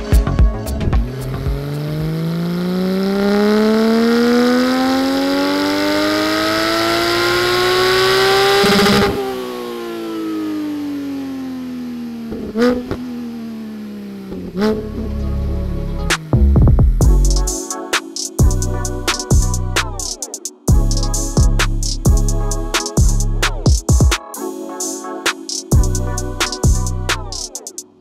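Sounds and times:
car engine revving at full throttle: 1.0 - 17.0.

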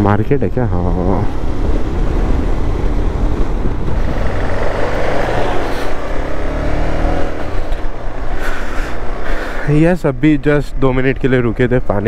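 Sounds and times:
road and wind noise: 0.0 - 12.0
motorcycle engine running: 1.3 - 8.3.

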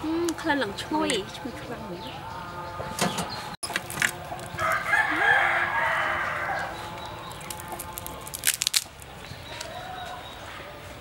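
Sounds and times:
rooster crowing: 4.5 - 7.3.

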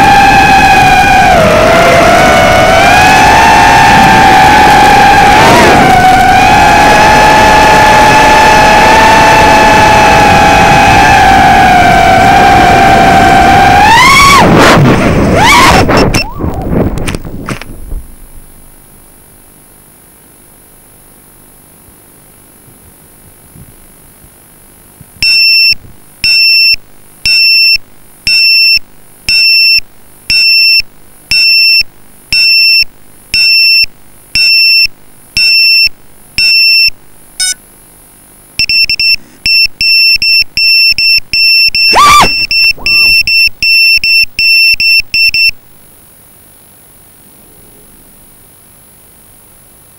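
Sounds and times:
loud high beeps: 15.6 - 16.6, 25.2 - 37.6, 38.6 - 45.6
drone motors spinning up: 41.7 - 43.8.

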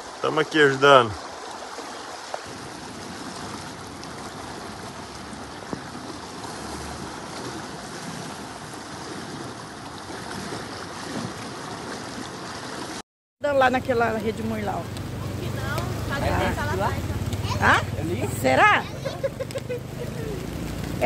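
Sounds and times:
floodwater rushing: 0.0 - 21.0
wind on microphone: 2.4 - 12.2.

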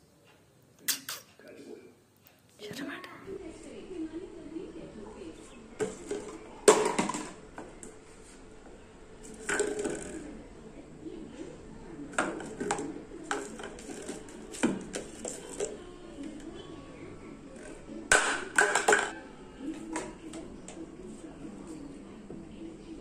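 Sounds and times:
plastic bottles clattering on countertop: 5.8 - 7.8, 9.3 - 10.2, 12.1 - 15.8, 18.1 - 19.1.

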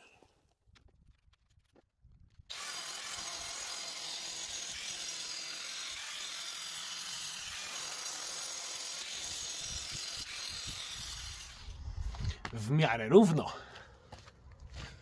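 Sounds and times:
angle grinder cutting stone: 2.5 - 11.8.

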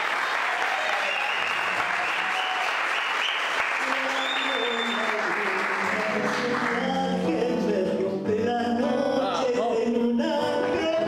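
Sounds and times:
applause: 0.0 - 7.0
woman singing: 3.9 - 11.0
acoustic guitar: 4.6 - 11.0.

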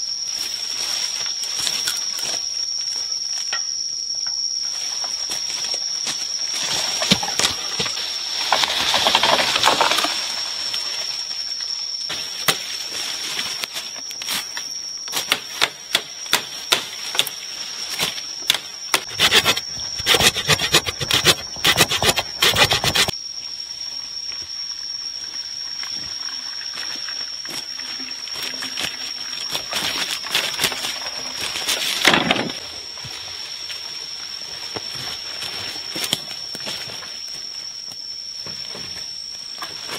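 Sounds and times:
machete striking bamboo: 15.1 - 17.4.

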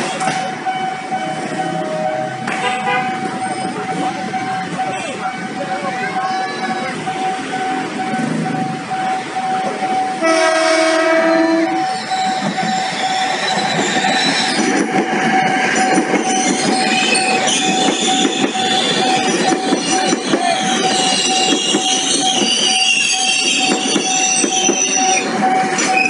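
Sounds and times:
wheels clattering on rail joints: 0.0 - 26.0
train horn: 1.6 - 3.2, 10.2 - 11.9
wheels squealing: 3.1 - 26.0.

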